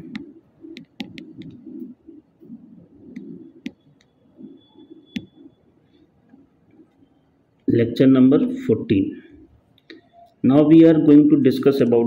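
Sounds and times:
stylus tapping on glass screen: 0:00.0 - 0:01.6
faint background noise: 0:00.0 - 0:12.0.

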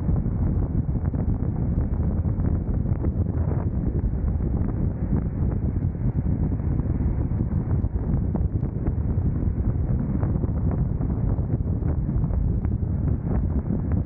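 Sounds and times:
wind rushing over microphone: 0:00.0 - 0:14.0.

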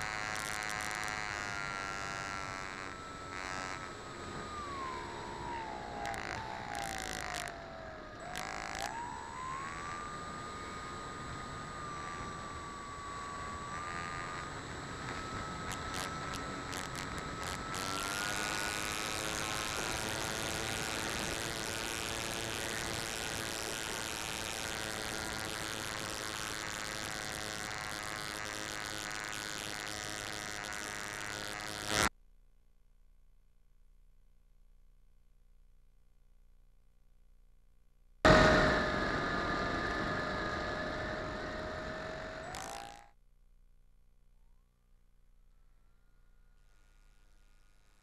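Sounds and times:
model airplane engine: 0:00.0 - 0:32.1, 0:38.3 - 0:43.2, 0:45.5 - 0:48.0
faint hum: 0:00.0 - 0:48.0
wind rush: 0:38.3 - 0:42.5.

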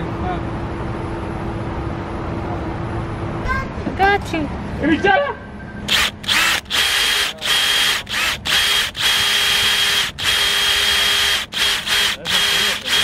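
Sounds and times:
power tool whining in bursts: 0:05.9 - 0:13.0.

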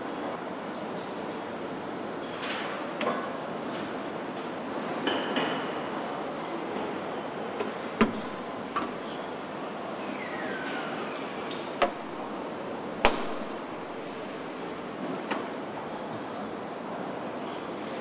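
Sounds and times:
factory machinery hum: 0:00.0 - 0:18.0
falling squeal: 0:10.0 - 0:11.0.

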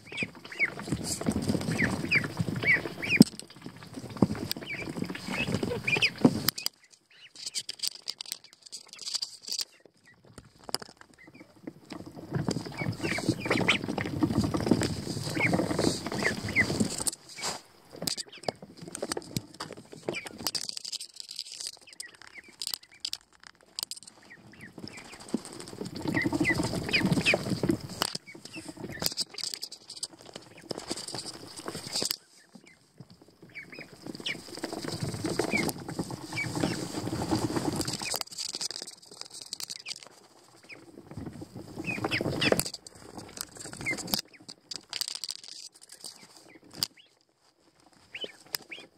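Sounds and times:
duckling peeps: 0:00.0 - 0:10.3, 0:11.1 - 0:11.6, 0:12.3 - 0:18.7, 0:20.0 - 0:20.6, 0:21.8 - 0:23.1, 0:24.2 - 0:38.2, 0:39.6 - 0:41.0, 0:41.7 - 0:42.7, 0:43.5 - 0:44.5, 0:45.9 - 0:47.2, 0:48.0 - 0:48.9
ducklings scuffling in bedding: 0:00.0 - 0:48.9.

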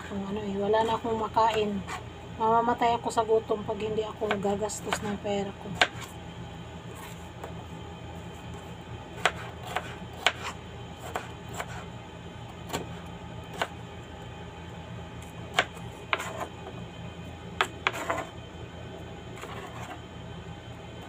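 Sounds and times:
steady low hum: 0:00.0 - 0:21.0
knife chopping on plastic board: 0:05.8 - 0:06.1, 0:09.2 - 0:11.8, 0:12.7 - 0:13.8, 0:15.5 - 0:16.5, 0:17.6 - 0:18.3.

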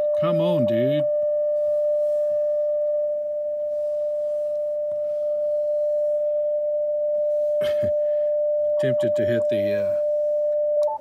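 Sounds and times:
steady radio beat tone: 0:00.0 - 0:02.3, 0:08.8 - 0:11.0.

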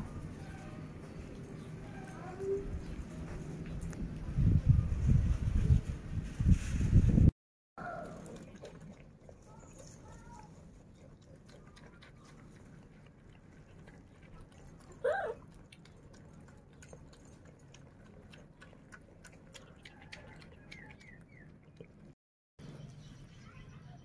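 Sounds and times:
piglet chewing: 0:07.8 - 0:22.2.

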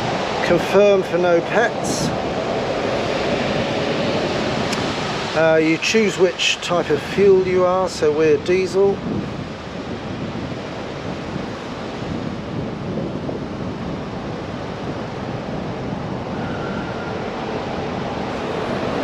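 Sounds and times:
wind noise on microphone: 0:00.0 - 0:19.0.

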